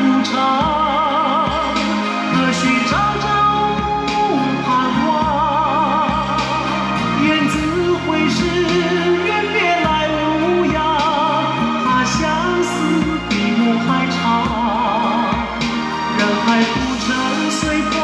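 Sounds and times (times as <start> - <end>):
music accompaniment: 0.0 - 18.0
person singing with vibrato: 0.0 - 18.0.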